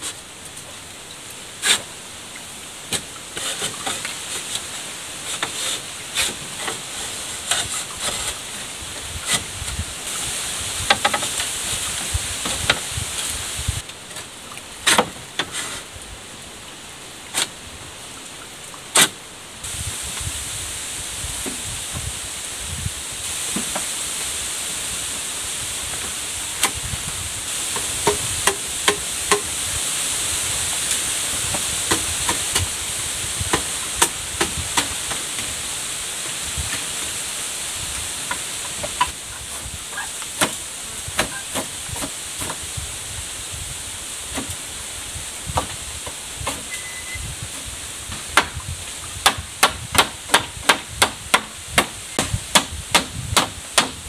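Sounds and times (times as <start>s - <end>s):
steady high hiss: 0.0s - 54.0s
knocks and taps on bamboo: 10.8s - 11.5s, 12.4s - 12.9s, 13.8s - 15.6s, 26.0s - 26.8s, 27.7s - 29.5s, 31.5s - 32.7s, 33.5s - 35.5s, 38.2s - 40.6s, 41.2s - 42.6s, 45.5s - 46.7s, 47.5s - 54.0s
tool striking bamboo: 14.8s - 15.6s, 18.9s - 19.2s, 27.7s - 29.5s, 31.9s - 32.7s, 33.5s - 35.5s, 40.4s - 40.6s, 41.2s - 42.6s, 45.6s - 46.7s, 47.6s - 48.6s, 49.2s - 54.0s.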